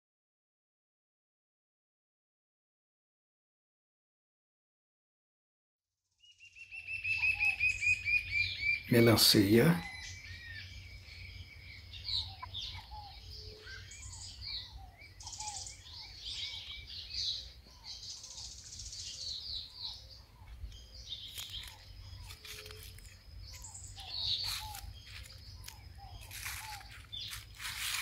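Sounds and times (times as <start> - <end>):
birds chirping and calling: 6.3 - 28.0.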